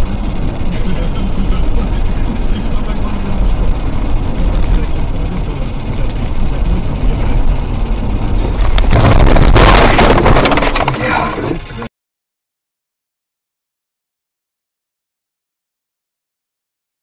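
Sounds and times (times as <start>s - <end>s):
car engine and road noise: 0.0s - 11.9s
car crashing into trees: 8.6s - 11.6s.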